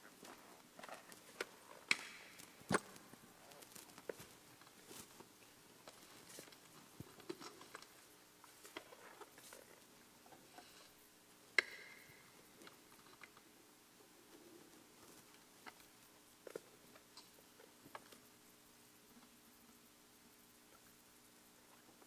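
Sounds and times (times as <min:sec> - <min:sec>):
rustling of vestments: 0:00.0 - 0:09.9.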